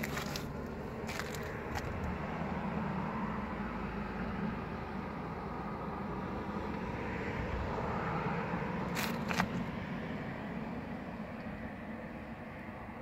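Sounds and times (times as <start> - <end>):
sharp crunches: 0.0 - 2.1, 8.9 - 9.6
low outdoor rumble: 0.0 - 13.0.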